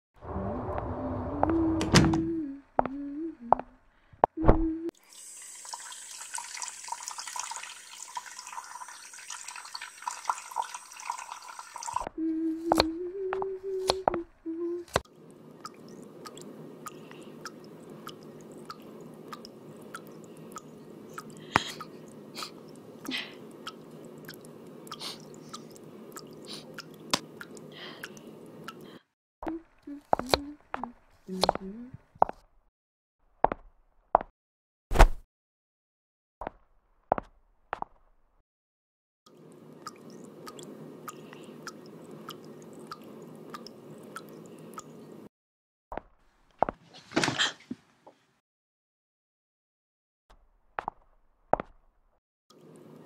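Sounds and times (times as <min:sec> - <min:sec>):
water dripping: 0:05.0 - 0:12.1, 0:15.0 - 0:31.8, 0:39.3 - 0:45.2.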